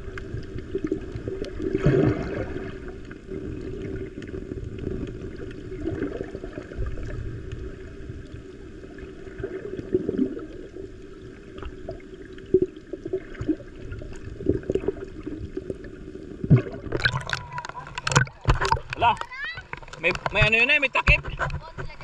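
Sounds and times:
underwater rumble and gurgle: 0.0s - 22.0s.

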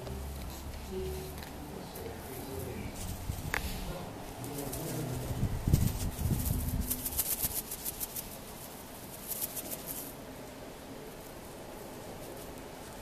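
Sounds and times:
low rumble: 0.0s - 7.2s
toy rattle shaken: 4.5s - 8.4s, 9.2s - 10.1s.

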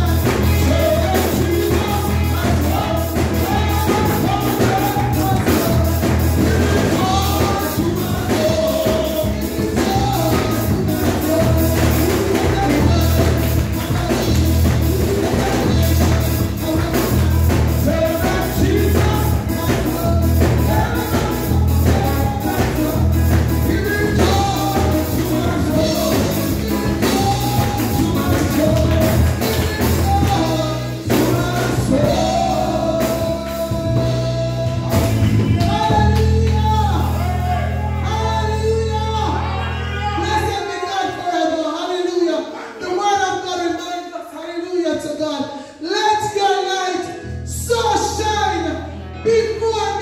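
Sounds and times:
backing music with bass beat: 0.0s - 39.5s.

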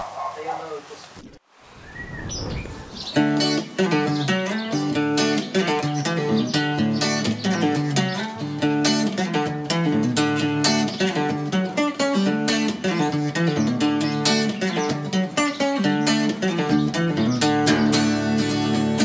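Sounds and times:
guitar playing: 3.1s - 19.0s.

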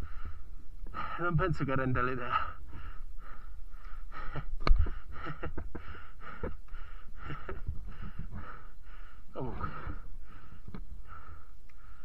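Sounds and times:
rider panting hard: 2.4s - 12.0s.

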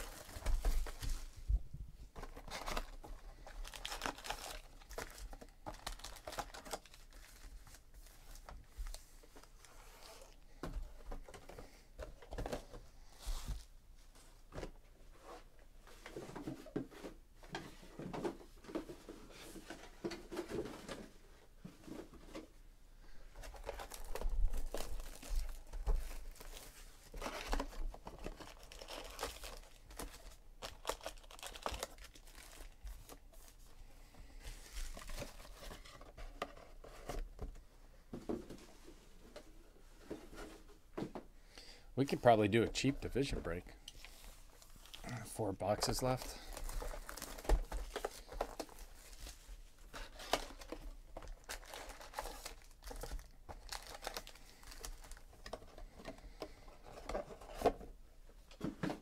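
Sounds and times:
card packs crinkling: 0.0s - 1.4s, 2.1s - 10.4s, 23.4s - 33.7s, 34.5s - 37.1s, 42.0s - 57.8s.

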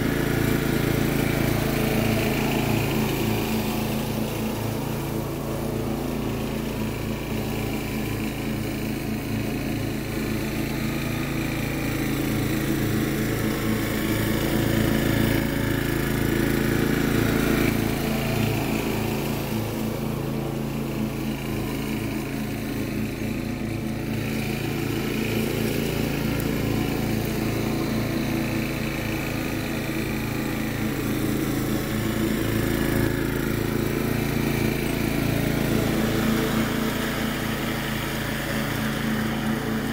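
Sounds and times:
riding lawn mower engine: 0.0s - 39.9s.

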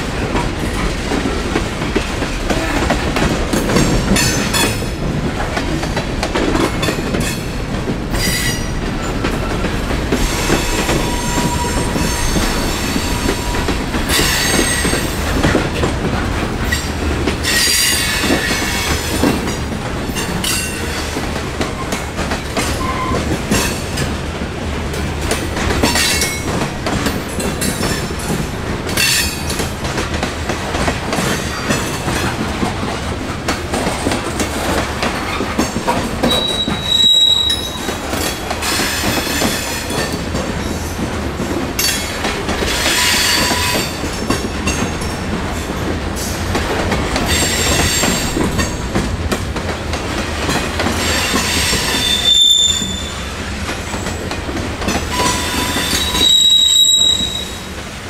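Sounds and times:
train wheel squeal: 8.1s - 15.1s, 16.7s - 19.3s, 22.7s - 23.8s, 36.2s - 40.2s, 42.7s - 44.1s, 47.3s - 48.4s, 51.0s - 54.2s, 55.0s - 57.8s
wheels clicking over rail joints: 24.9s - 57.6s.

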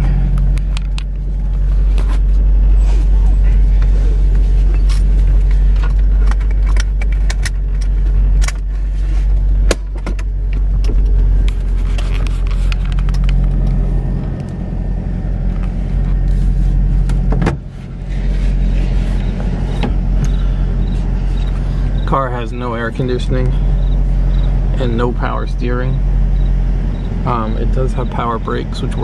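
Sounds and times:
car engine droning: 0.0s - 29.0s
clicks and rattles: 4.8s - 8.7s.

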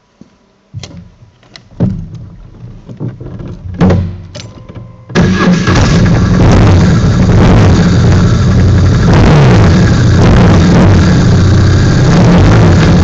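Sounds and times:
sharp metal knocks and clunks: 0.8s - 5.3s
motorcycle engine running: 5.1s - 13.0s.

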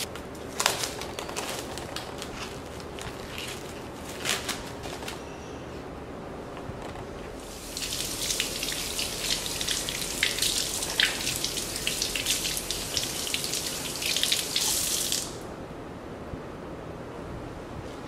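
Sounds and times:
water running from tap: 7.4s - 15.4s.

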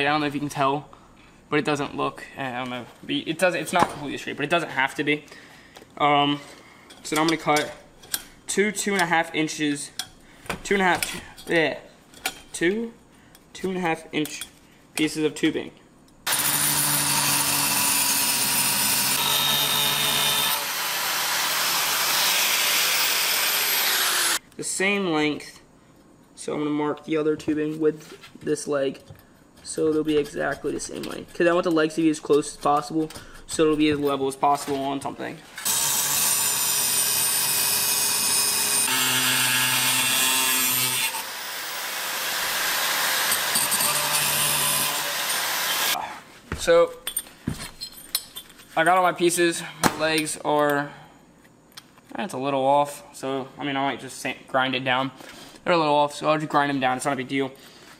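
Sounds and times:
angle grinder cutting metal: 16.3s - 24.4s, 35.6s - 46.0s.

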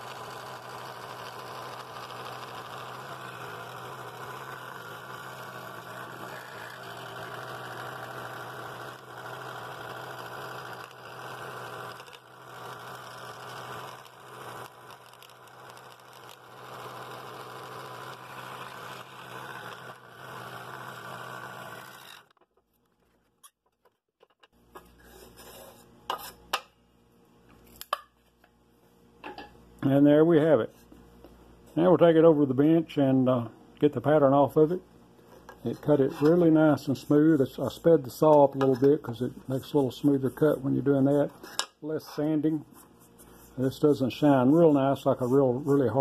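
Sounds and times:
scroll saw cutting wood: 0.0s - 22.4s, 35.4s - 46.0s.

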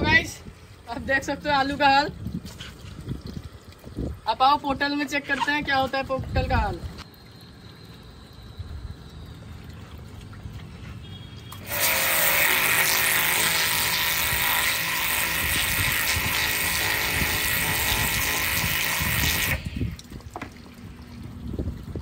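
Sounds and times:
faint machine tone: 7.0s - 10.3s
pressure washer water jet hissing: 11.5s - 19.9s.

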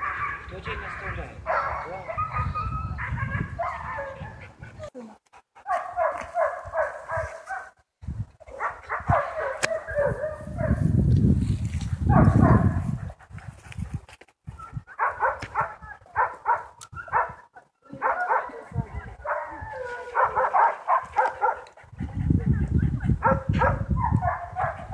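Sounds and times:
dogs yipping and whining: 2.0s - 5.0s, 14.5s - 17.8s.

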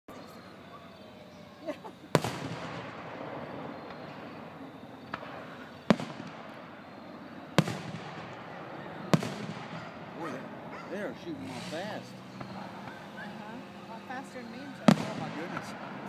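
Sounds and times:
fireworks bangs with echo: 1.9s - 10.7s, 11.4s - 16.0s
small firework pops: 2.1s - 3.0s, 3.8s - 4.3s, 5.0s - 6.6s, 7.6s - 8.4s, 9.1s - 9.8s.

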